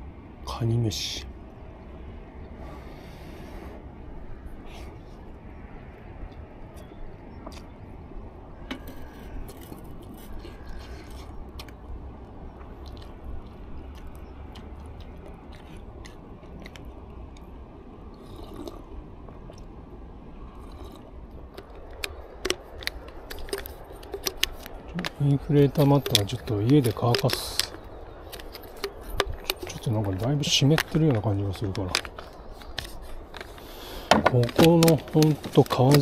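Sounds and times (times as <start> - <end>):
person chewing food: 9.0 - 11.8, 12.5 - 17.5, 18.1 - 19.7, 20.5 - 30.2.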